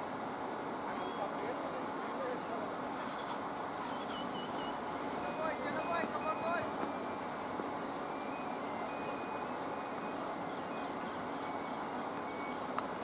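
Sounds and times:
outdoor background hum: 0:00.0 - 0:13.0
faint high chirps: 0:07.9 - 0:12.7.

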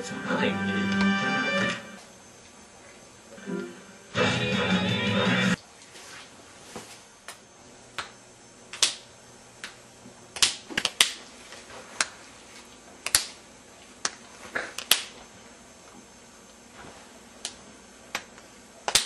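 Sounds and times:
sharp snapping clicks: 0:08.0 - 0:11.2, 0:13.0 - 0:13.4, 0:14.0 - 0:15.2, 0:17.4 - 0:19.0.

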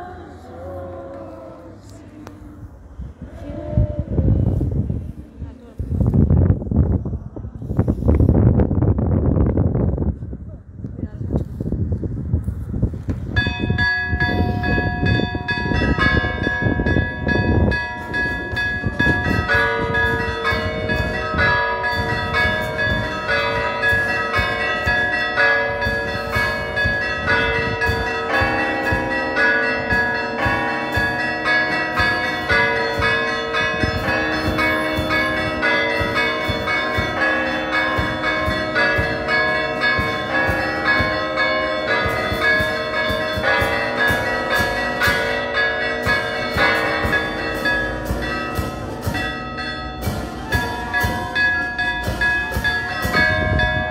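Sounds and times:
church bells ringing: 0:00.0 - 0:02.2, 0:13.3 - 0:53.9
wind on microphone: 0:00.0 - 0:53.9.

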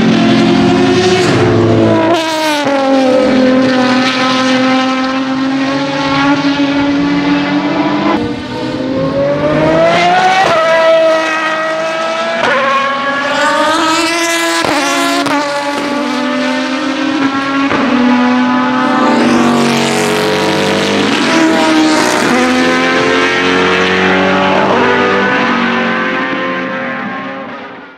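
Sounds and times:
racing car engines accelerating: 0:00.0 - 0:27.9.

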